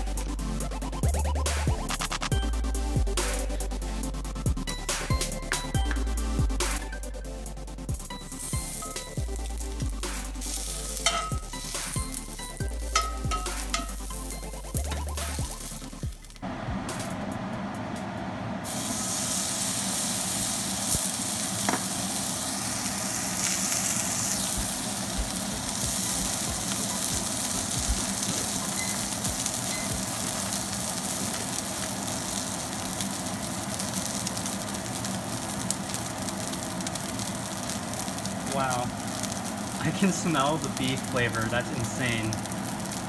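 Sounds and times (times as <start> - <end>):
meat sizzling in a skillet: 7.8 - 16.4, 18.6 - 43.0.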